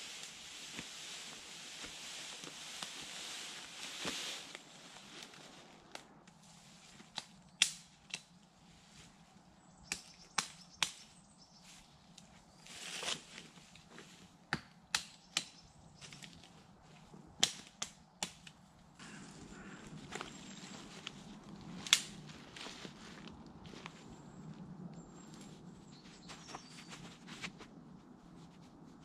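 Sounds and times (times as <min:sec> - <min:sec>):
branches rustling: 0:00.0 - 0:29.0
twigs snapping: 0:03.8 - 0:08.4, 0:09.8 - 0:11.2, 0:14.5 - 0:16.5, 0:17.4 - 0:23.9.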